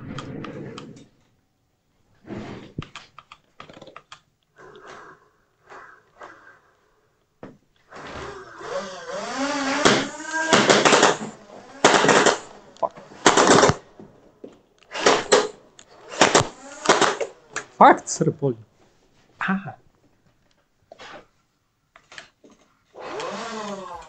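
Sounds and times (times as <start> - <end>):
motor whirring: 7.9 - 13.8, 14.9 - 17.6, 23.0 - 24.0.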